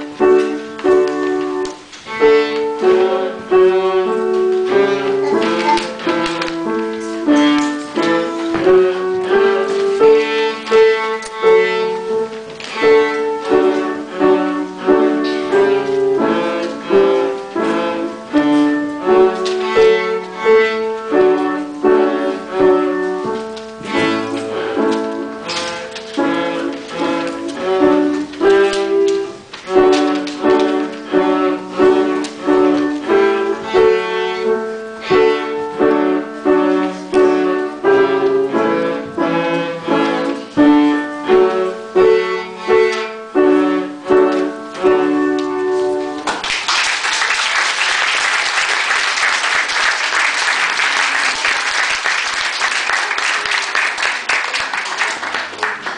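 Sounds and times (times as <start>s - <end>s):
cello playing folk tune: 0.0s - 46.2s
audience applauding: 46.2s - 55.9s.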